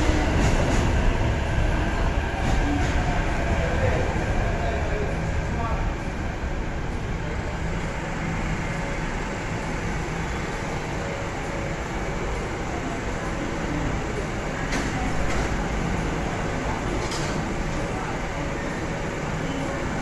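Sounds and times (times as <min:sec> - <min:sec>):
low train hum: 0:00.0 - 0:20.0
train wheels rumbling: 0:00.0 - 0:20.0.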